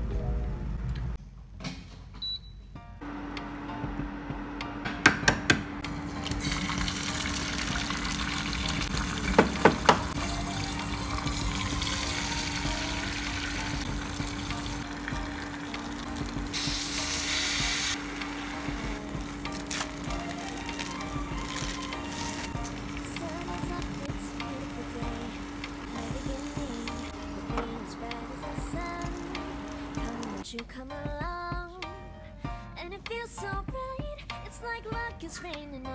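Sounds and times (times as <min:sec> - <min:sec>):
steady low hum: 0:03.0 - 0:06.4, 0:17.6 - 0:20.5, 0:22.6 - 0:30.4
eggs sizzling in oil: 0:05.9 - 0:30.4.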